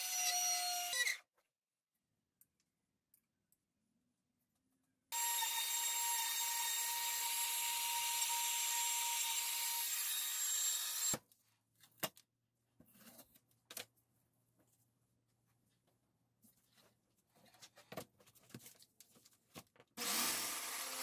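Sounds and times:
router cutting wood: 5.2 - 11.2, 20.0 - 21.0.

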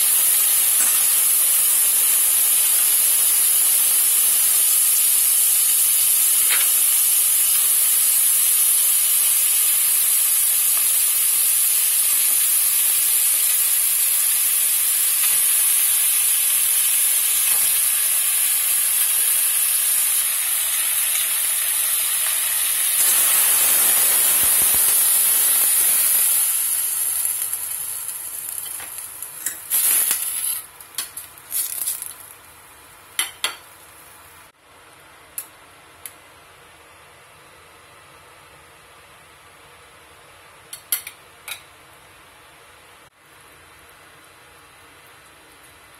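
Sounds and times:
meat sizzling in a pot: 0.0 - 34.2.

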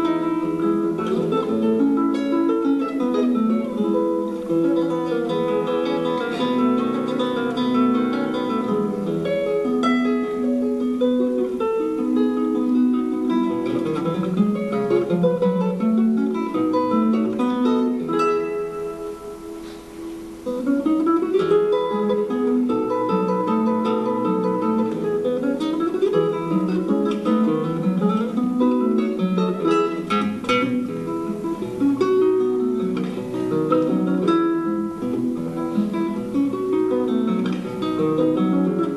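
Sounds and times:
solo classical guitar: 0.0 - 38.9.

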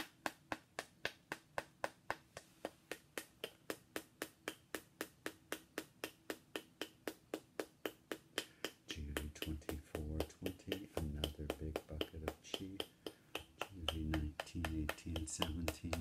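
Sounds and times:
metal rod tapping on figurine: 8.6 - 16.0.

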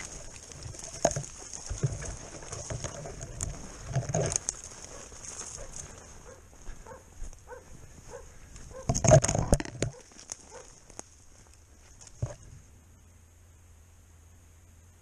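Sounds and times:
footsteps crunching through snow: 0.0 - 8.9, 9.9 - 12.5
twigs brushing against clothing: 0.0 - 12.7.

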